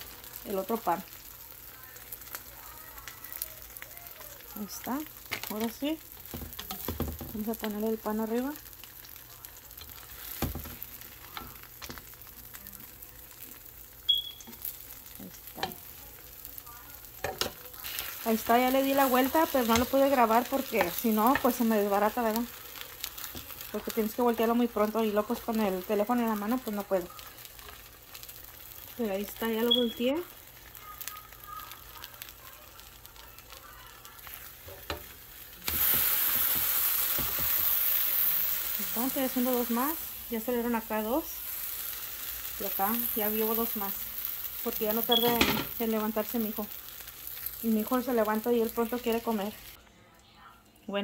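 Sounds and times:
bread sizzling in a pan: 0:00.0 - 0:49.8
spatula scraping and tapping: 0:06.2 - 0:07.8.

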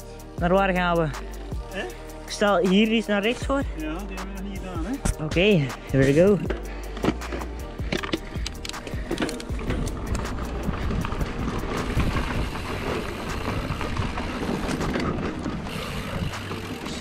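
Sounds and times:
bike tyres on dirt and leaves: 0:00.0 - 0:17.0
bike rattling and knocking: 0:04.7 - 0:17.0
wind rumble on microphone: 0:09.5 - 0:16.6.

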